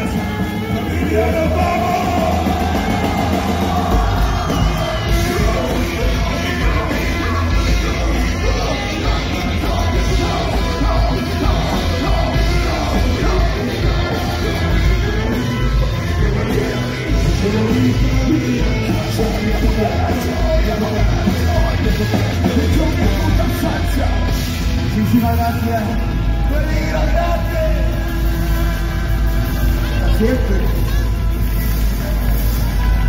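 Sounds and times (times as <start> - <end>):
voices yelling: 0.0 - 24.4
heavy bass beat: 0.0 - 33.0
loud rock band music: 0.0 - 33.0.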